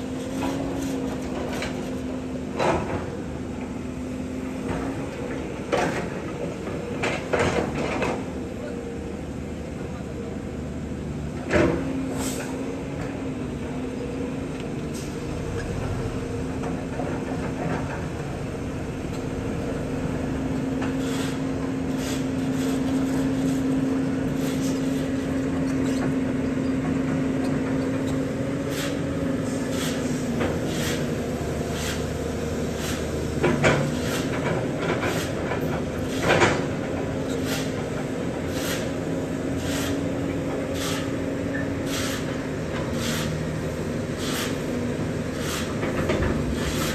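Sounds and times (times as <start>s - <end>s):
excavator engine and hydraulics hum: 0.0s - 46.9s.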